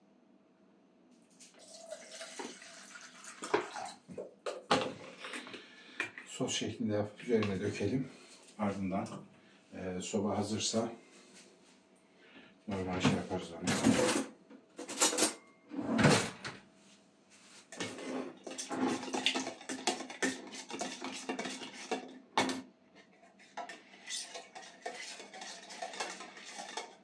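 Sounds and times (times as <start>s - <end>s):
metal spoon scraping in tin can: 17.7s - 22.2s, 23.4s - 27.0s.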